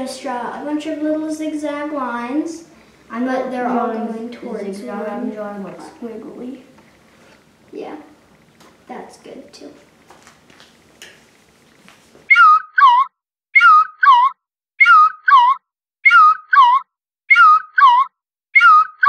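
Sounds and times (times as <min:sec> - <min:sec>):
high two-note whistle-like chirp: 0:12.3 - 0:19.0.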